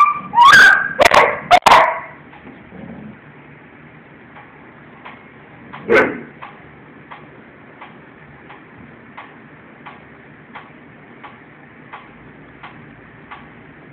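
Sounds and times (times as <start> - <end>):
mechanical ticking: 4.3 - 13.7.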